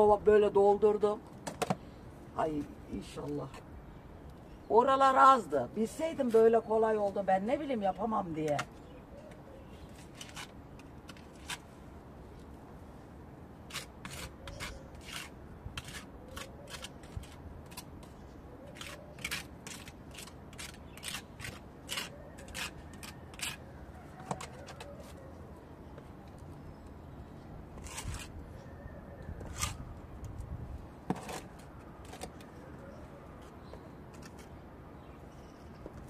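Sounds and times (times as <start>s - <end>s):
spatula scraping mortar: 9.9s - 11.7s, 13.7s - 25.2s, 27.8s - 28.4s, 29.4s - 29.8s.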